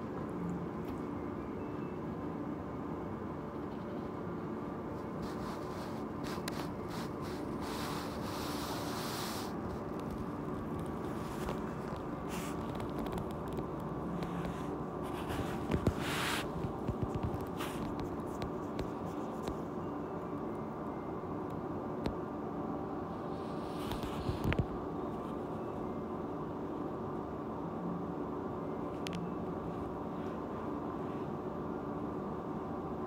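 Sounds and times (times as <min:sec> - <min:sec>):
room hum: 0:00.0 - 0:33.0
soft rustles and clicks: 0:04.9 - 0:19.8, 0:23.5 - 0:25.6.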